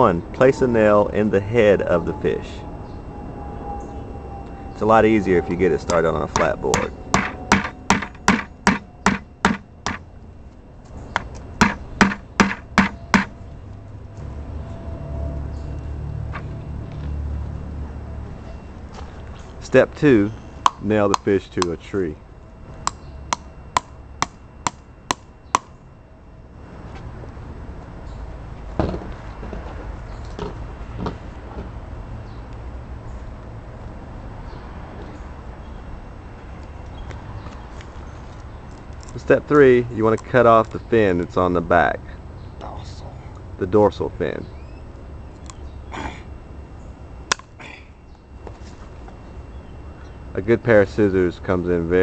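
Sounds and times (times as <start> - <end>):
low outdoor rumble: 0.0 - 52.0
sharp knocks: 6.3 - 10.0, 11.2 - 13.4
hammer hitting nail into wood: 6.4 - 10.0, 11.2 - 13.3.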